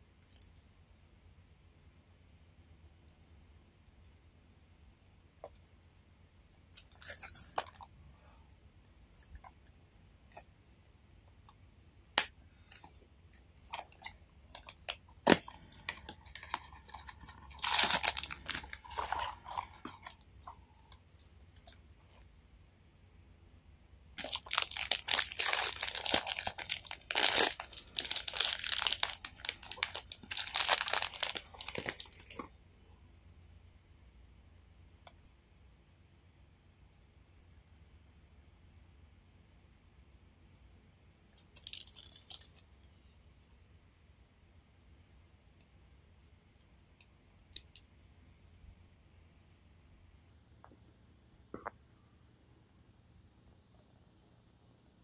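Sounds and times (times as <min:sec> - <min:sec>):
foil bag crinkling and tearing: 0:13.8 - 0:20.2, 0:24.2 - 0:32.4.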